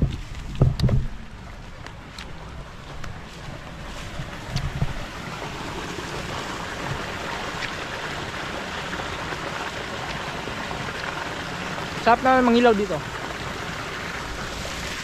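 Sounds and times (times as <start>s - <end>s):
wind blowing across microphone: 0.0s - 2.2s, 2.8s - 8.0s.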